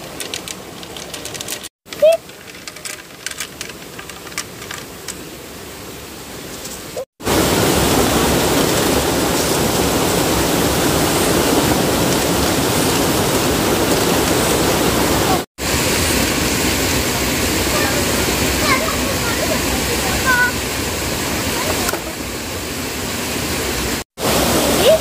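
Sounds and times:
stream water rushing: 3.5 - 25.0.

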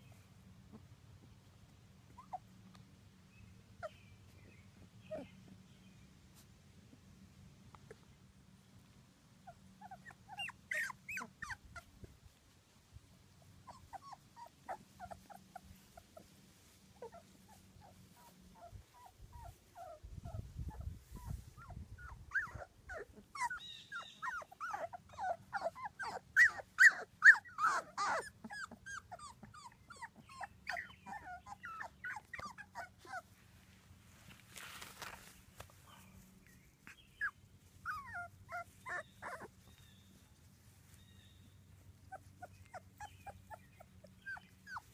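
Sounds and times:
puppies whimpering and squeaking: 2.1 - 2.5, 3.8 - 5.5, 9.4 - 12.1, 13.4 - 33.4, 36.8 - 44.9.

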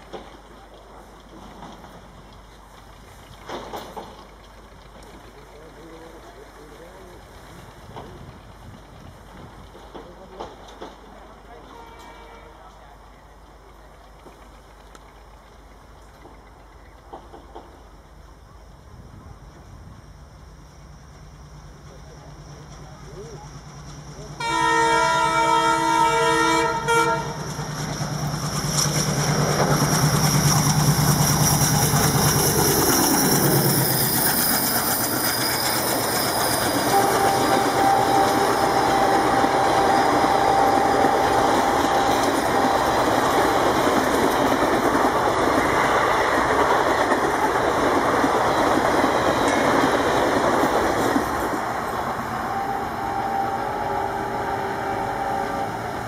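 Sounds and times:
wheels clacking on rails: 0.0 - 18.8, 20.6 - 56.0
locomotive air horn: 11.7 - 12.6, 24.4 - 27.4, 36.9 - 43.7, 52.4 - 56.0.

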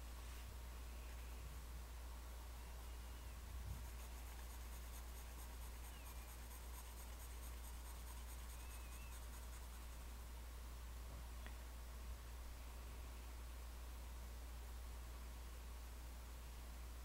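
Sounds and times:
pencil scratching on paper: 3.8 - 10.0.

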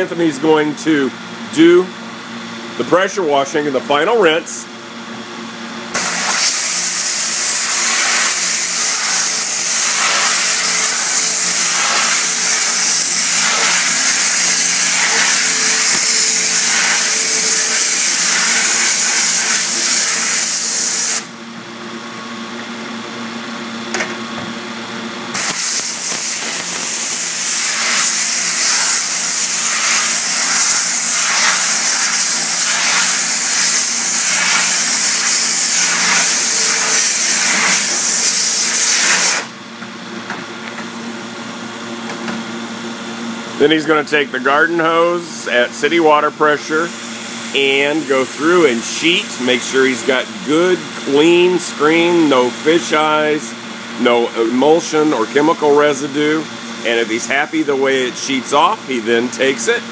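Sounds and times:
steady hum: 0.0 - 59.9
pressure washer spraying: 6.0 - 21.3, 25.4 - 39.5.

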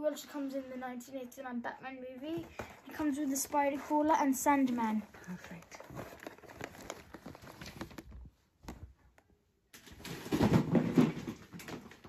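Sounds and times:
cardboard box rustling: 2.3 - 8.2.

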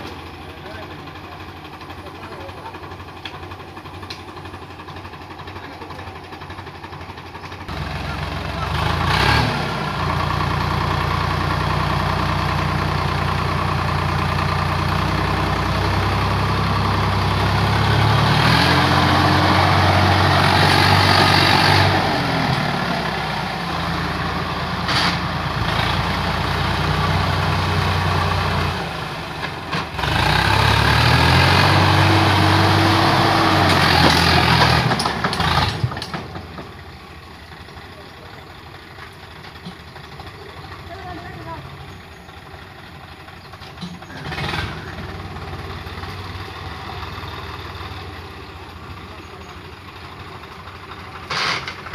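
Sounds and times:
tractor diesel engine revving: 0.0 - 51.9.

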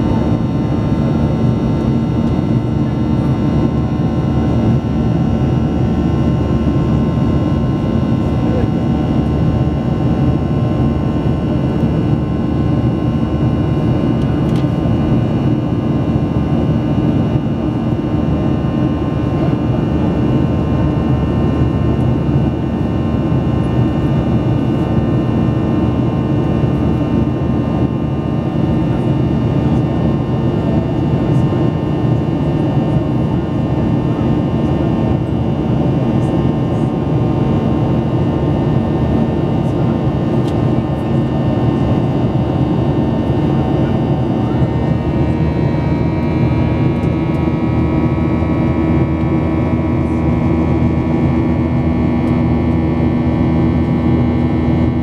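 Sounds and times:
jet engine drone in cabin: 0.0 - 55.0.

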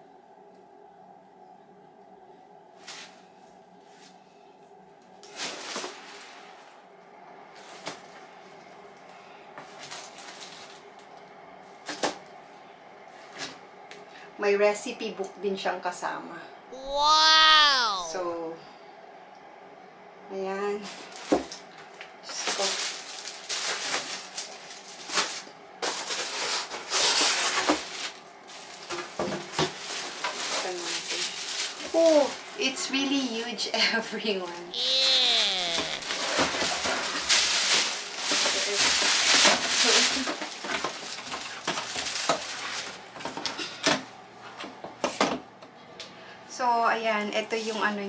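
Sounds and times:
plastic bag and bubble wrap rustling: 5.3 - 6.6, 9.7 - 10.8, 22.3 - 32.4, 34.8 - 43.4.

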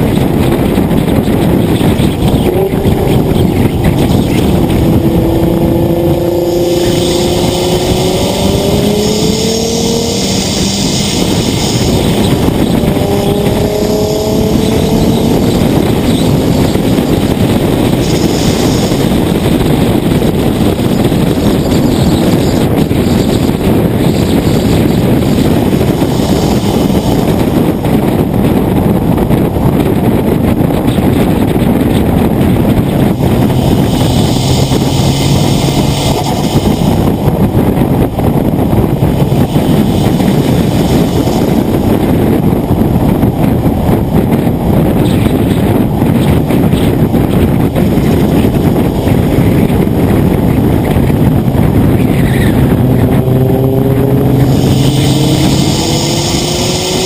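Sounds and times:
wind and road noise: 0.0 - 57.0
faint engine hum: 47.2 - 57.0.

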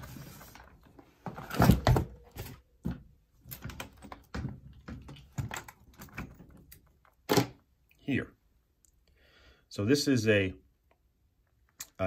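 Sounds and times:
hands handling cable and objects: 0.0 - 7.7.

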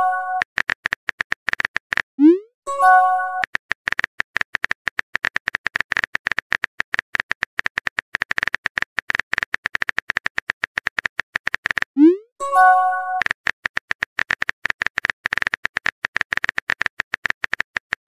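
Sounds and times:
smartphone keyboard typing clicks: 3.4 - 12.0, 12.9 - 18.0.

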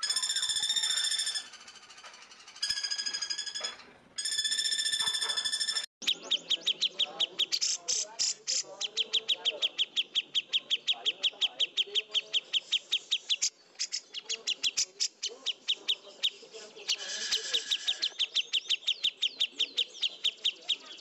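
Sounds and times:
fast high bird chirps: 0.0 - 21.0.

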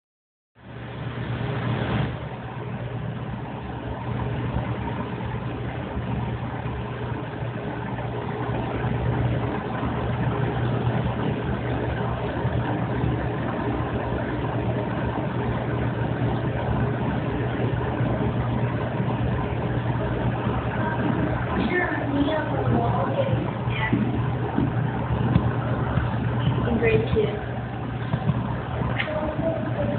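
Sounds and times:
aquarium filter pump humming: 0.6 - 29.9.

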